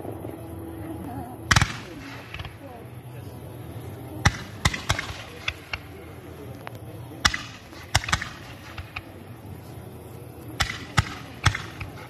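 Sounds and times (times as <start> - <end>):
fireworks bangs and cracks: 4.3 - 6.0, 7.2 - 9.2, 10.6 - 12.0.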